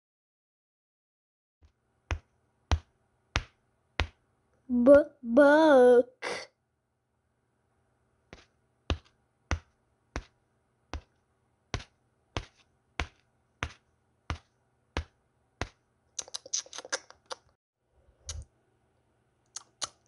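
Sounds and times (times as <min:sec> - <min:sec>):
footstep taps: 0:01.6 - 0:04.3, 0:08.3 - 0:15.8.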